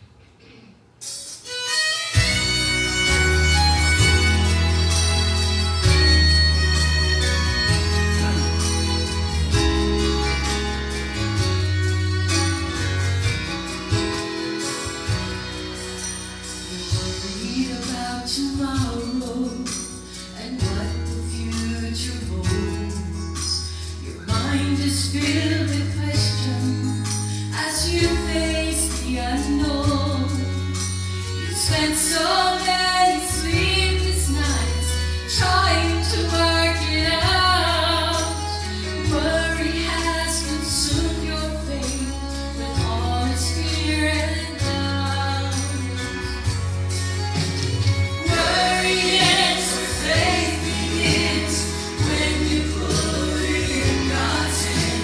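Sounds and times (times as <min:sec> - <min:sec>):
bass and percussion accompaniment: 0:00.9 - 0:55.0
woman singing gospel song: 0:16.6 - 0:46.2, 0:48.2 - 0:55.0.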